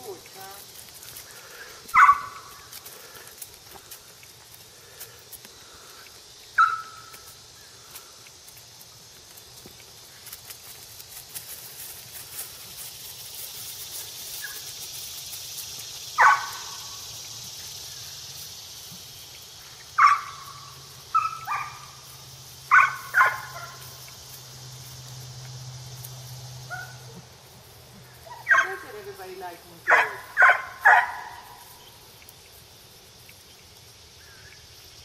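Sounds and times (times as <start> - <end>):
dog barking: 1.9 - 2.5, 6.6 - 7.0, 16.2 - 16.8, 20.0 - 20.5, 21.1 - 21.8, 22.7 - 23.8, 28.3 - 28.8, 29.9 - 31.6.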